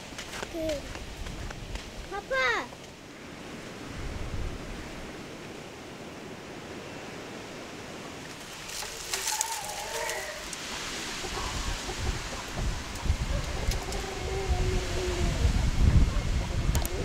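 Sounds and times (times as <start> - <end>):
rushing outdoor noise: 0.0 - 17.0
twigs rustling and crackling: 8.2 - 14.1.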